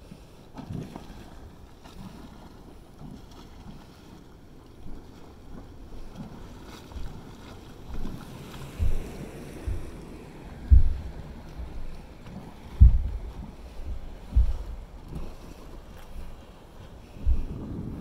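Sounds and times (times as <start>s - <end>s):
hot spring churning and sloshing: 0.0s - 18.0s
wind thumps on microphone: 7.9s - 16.4s, 17.0s - 18.0s.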